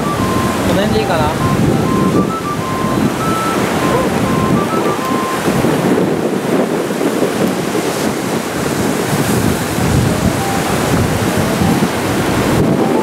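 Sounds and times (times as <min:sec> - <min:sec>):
rough surf churning: 0:00.0 - 0:13.0
wind buffeting microphone: 0:00.0 - 0:13.0.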